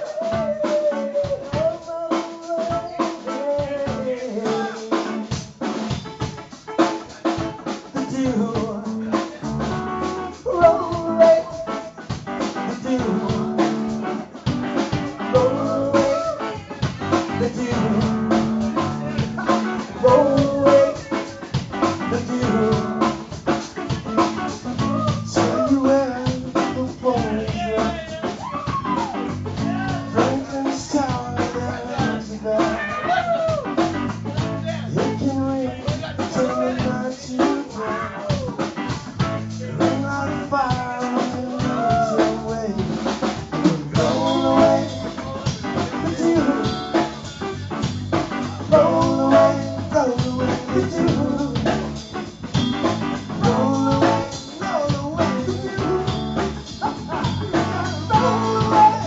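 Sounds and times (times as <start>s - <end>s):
person singing: 0.0s - 5.7s, 6.4s - 59.0s
drum kit: 0.0s - 59.0s
guitar: 0.0s - 59.0s.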